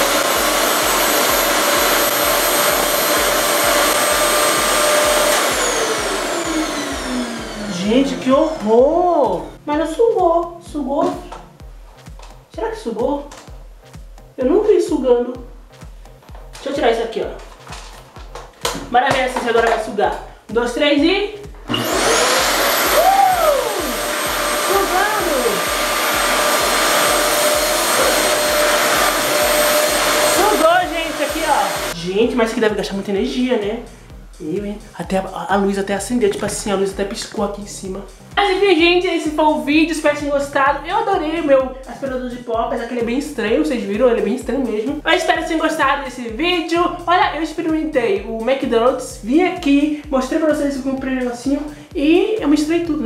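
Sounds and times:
vacuum motor spinning down: 0.0 - 8.8, 21.7 - 32.0
vacuum cleaner running: 0.0 - 9.5, 21.6 - 32.0.

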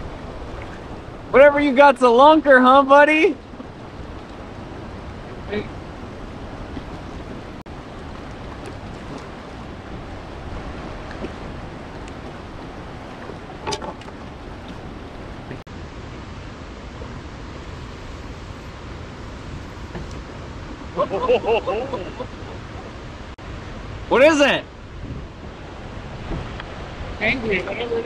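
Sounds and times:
water lapping around a canoe: 0.0 - 1.3, 3.3 - 21.0, 24.9 - 27.2
wind on microphone: 0.0 - 28.0.

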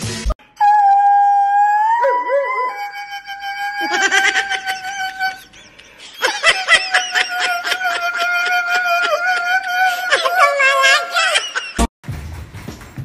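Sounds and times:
dog howling in pulses: 0.6 - 4.7.

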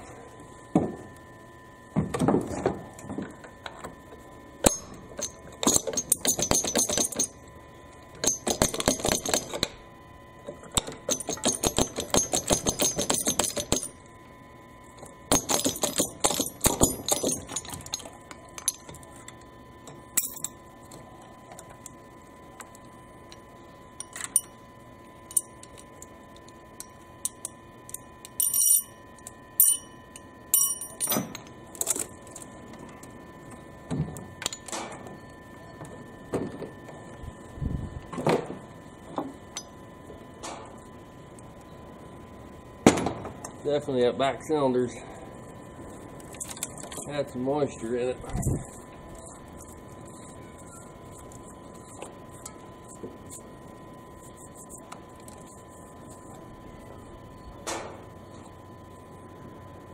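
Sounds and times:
rapid metallic clicking and clinking: 4.6 - 7.4, 8.2 - 9.7, 10.8 - 14.0, 15.3 - 18.9
loose metal parts clinking: 15.3 - 18.9.

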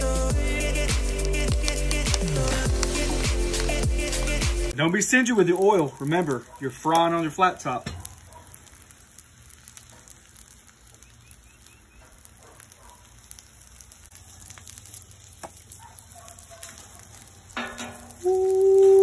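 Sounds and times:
chicken sizzling in oil: 0.0 - 19.0
person saying ooh: 18.2 - 19.0.

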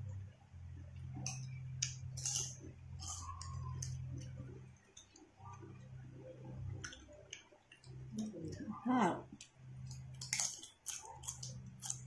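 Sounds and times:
low hum: 0.0 - 12.0
chips crunching: 1.3 - 3.9, 9.9 - 12.0.

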